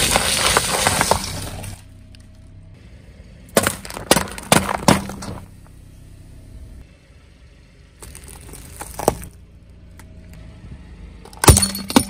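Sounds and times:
tyre crushing paper boxes: 0.0s - 1.6s
tyre crushing drink cans: 3.6s - 5.4s.

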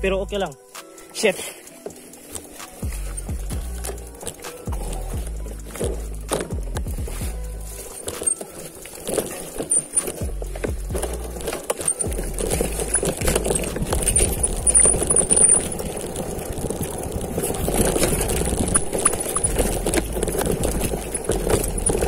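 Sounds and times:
bike rattling over rough ground: 0.0s - 22.0s
low rumble: 2.8s - 7.9s, 10.3s - 11.5s, 12.1s - 15.5s.

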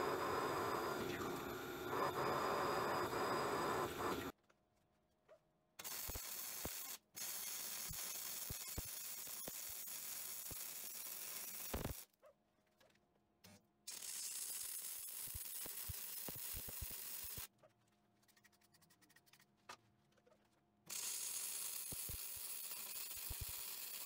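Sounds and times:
welding hiss with pops: 0.0s - 4.4s, 5.8s - 12.1s, 13.9s - 17.5s, 20.9s - 24.0s.

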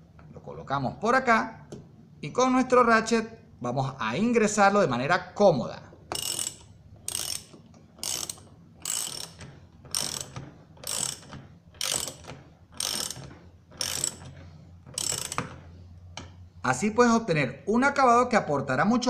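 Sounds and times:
ratchet wrench clicking: 6.1s - 15.6s.

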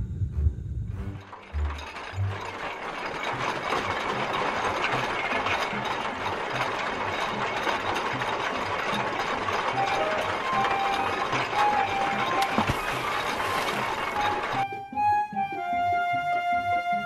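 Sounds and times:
tractor engine chugging: 1.2s - 14.7s.

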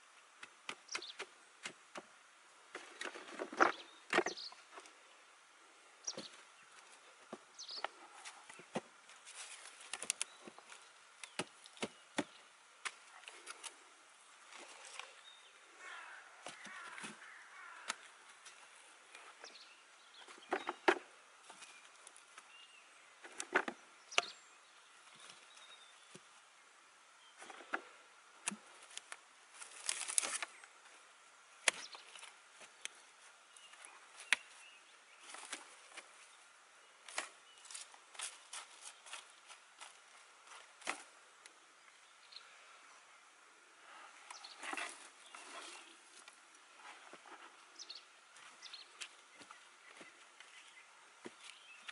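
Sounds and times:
rustling: 6.2s - 19.5s, 27.4s - 31.0s, 43.9s - 50.4s.

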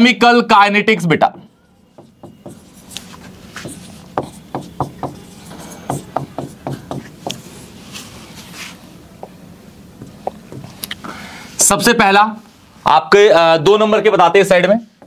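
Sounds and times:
stylus tapping on screen: 2.0s - 2.8s, 3.6s - 5.3s, 5.9s - 7.4s, 9.2s - 9.4s, 10.0s - 10.8s.

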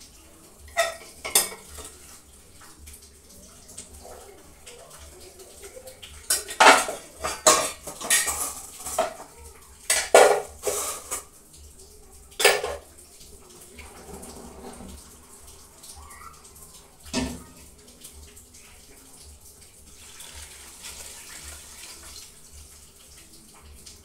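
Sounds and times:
metal pots clattering: 0.7s - 2.0s, 6.3s - 9.3s, 9.9s - 11.3s, 12.4s - 12.9s.

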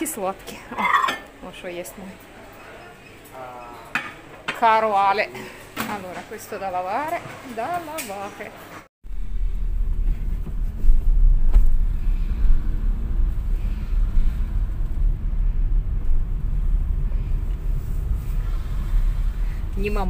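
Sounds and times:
car driving slowly: 9.2s - 20.0s.

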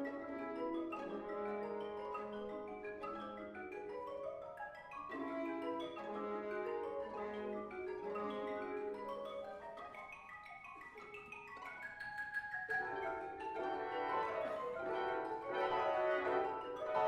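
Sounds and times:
mallet percussion notes: 0.0s - 17.0s
trumpets and winds: 13.7s - 17.0s.

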